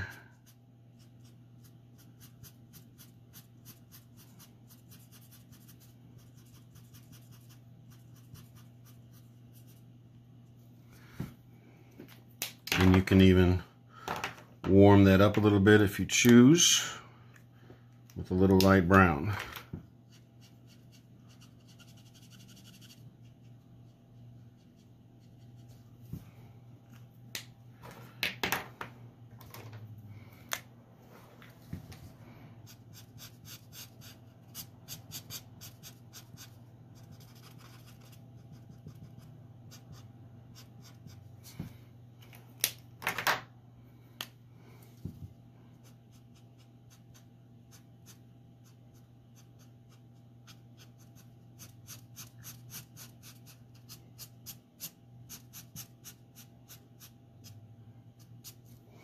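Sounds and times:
faint low hum: 0:00.0 - 0:59.0
marker nibs scratching on paper: 0:00.4 - 0:09.8, 0:32.7 - 0:41.2.

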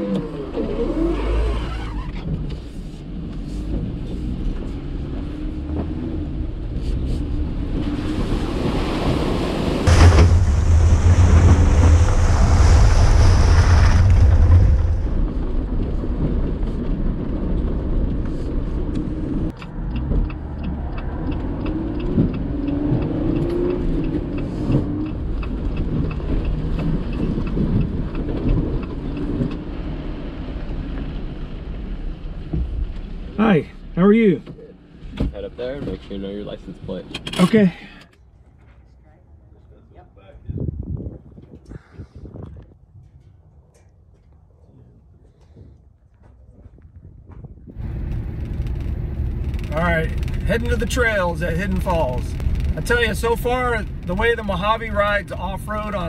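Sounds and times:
road noise: 0:00.0 - 0:56.0
pickup truck engine rumble: 0:03.5 - 0:23.1, 0:47.2 - 0:55.8.

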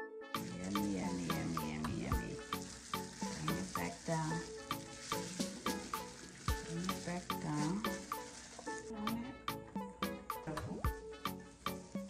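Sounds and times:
music with a steady beat: 0:00.3 - 0:12.0
wet squelching and rubbing: 0:00.4 - 0:09.1.

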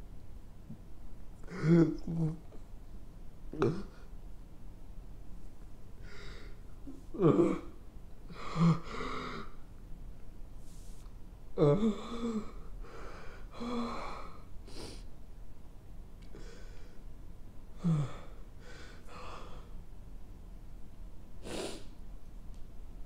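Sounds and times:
man sobbing: 0:01.4 - 0:02.6, 0:07.1 - 0:09.5, 0:11.6 - 0:12.6.

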